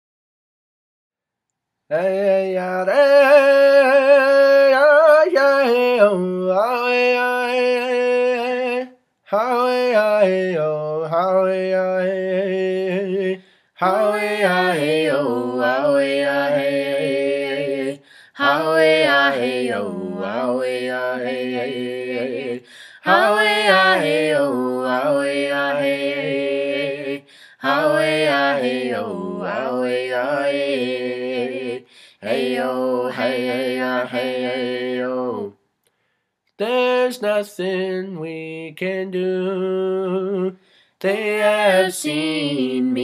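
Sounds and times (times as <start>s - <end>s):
person chanting vocables: 1.9s - 35.5s.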